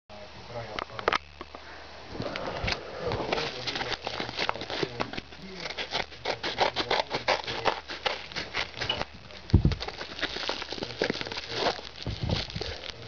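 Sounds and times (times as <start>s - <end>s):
paper crinkling and rustling: 2.2s - 13.0s
scissors snipping paper: 3.3s - 9.1s
dull thumps: 8.4s - 10.4s, 12.0s - 12.8s.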